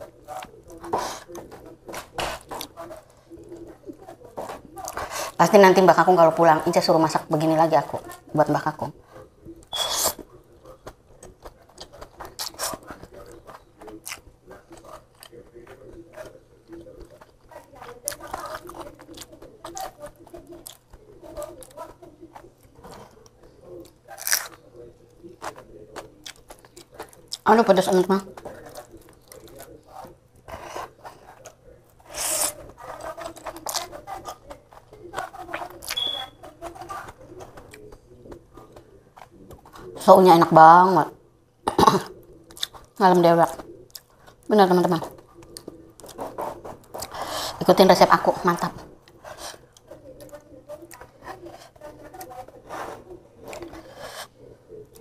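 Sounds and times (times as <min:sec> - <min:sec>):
chewing and lip smacks: 0:09.5 - 0:27.4, 0:28.3 - 0:40.0, 0:42.4 - 0:47.3.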